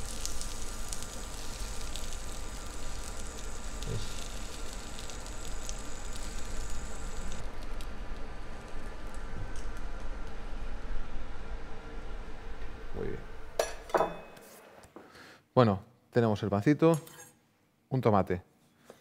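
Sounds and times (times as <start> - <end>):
bread sizzling in frying pan: 0.0 - 10.0.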